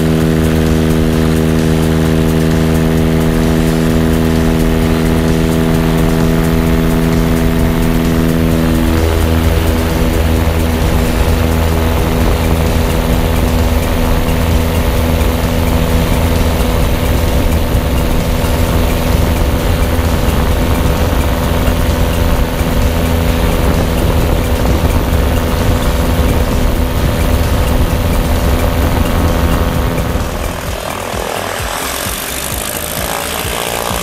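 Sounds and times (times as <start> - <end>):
light aircraft engine droning: 0.0 - 34.0.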